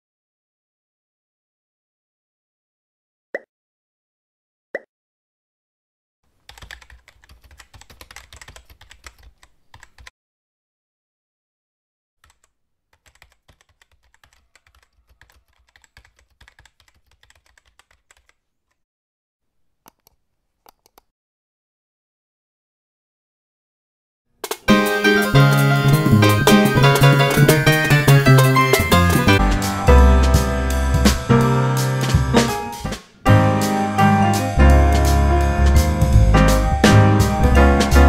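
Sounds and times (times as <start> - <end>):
keyboard typing clicks: 6.5 - 10.1, 12.2 - 18.4.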